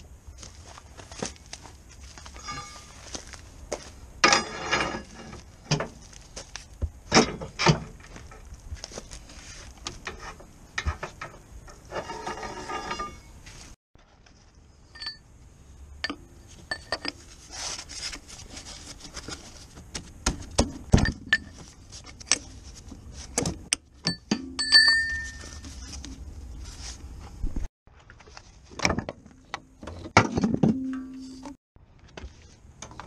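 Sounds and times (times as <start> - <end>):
pry bar knocking and scraping metal: 4.2 - 6.0, 9.8 - 13.3.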